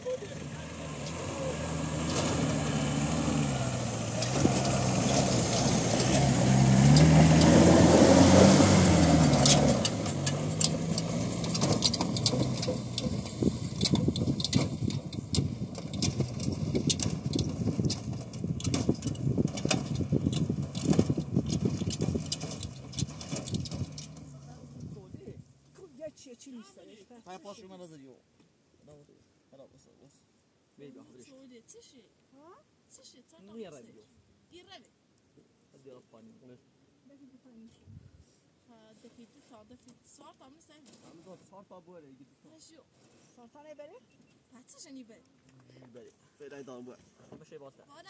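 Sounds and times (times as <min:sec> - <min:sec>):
truck engine revving: 0:00.0 - 0:25.0.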